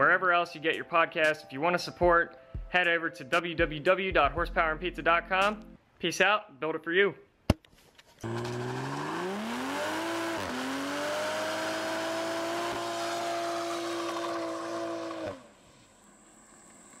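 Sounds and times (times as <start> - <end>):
car engine revving: 8.2 - 15.5.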